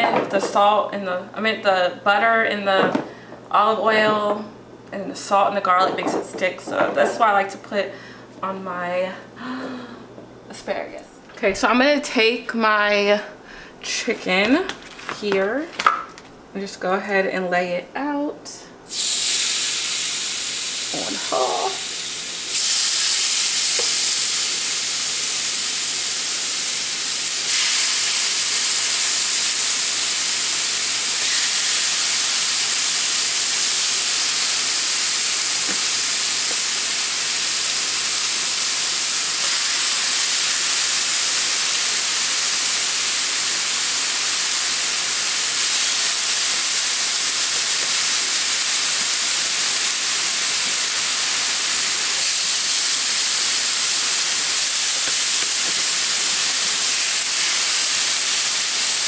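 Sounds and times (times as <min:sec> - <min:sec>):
chicken sizzling on griddle: 0:18.9 - 0:59.0.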